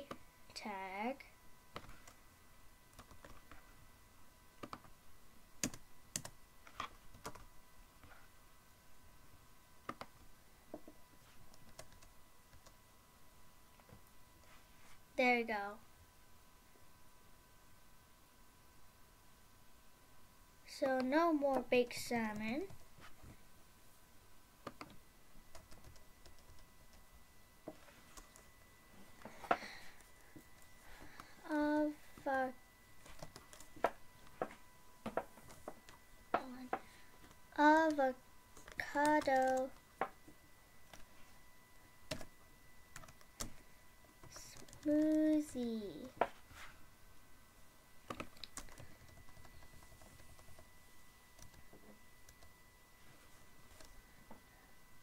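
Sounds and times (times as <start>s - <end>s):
computer keyboard keystrokes: 3.0s - 3.6s, 5.6s - 7.5s, 11.5s - 12.8s, 24.6s - 27.0s, 38.6s - 39.8s, 42.1s - 42.3s, 48.1s - 50.6s, 51.4s - 52.4s.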